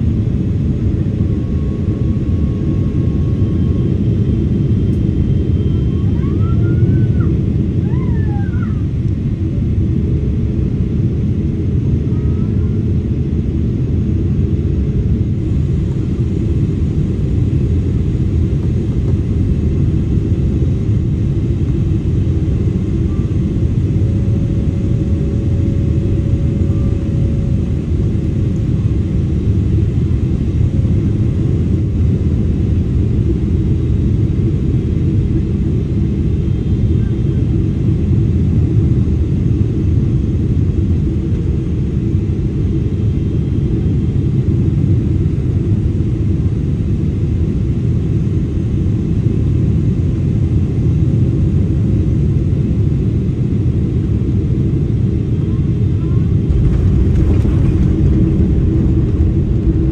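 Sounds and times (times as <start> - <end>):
aircraft cabin rumble: 0.0 - 59.9.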